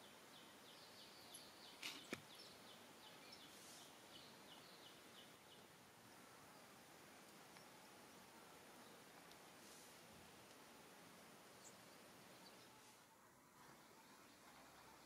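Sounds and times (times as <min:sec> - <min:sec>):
faint clicks: 0:09.2 - 0:09.5, 0:10.4 - 0:10.6.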